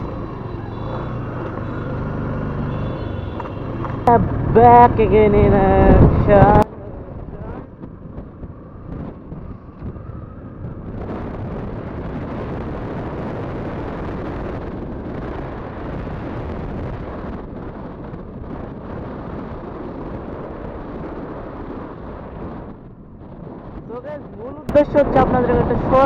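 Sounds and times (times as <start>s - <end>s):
motorcycle engine running: 0.0s - 6.0s
wind buffeting microphone: 0.0s - 26.0s.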